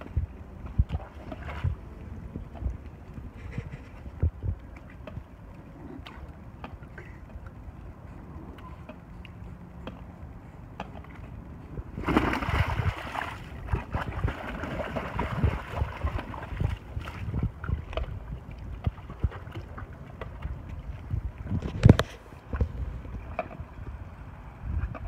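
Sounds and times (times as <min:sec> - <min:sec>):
dog paddling splashes: 0:00.6 - 0:07.0, 0:12.0 - 0:21.0
dog splashing into pool: 0:12.0 - 0:16.6.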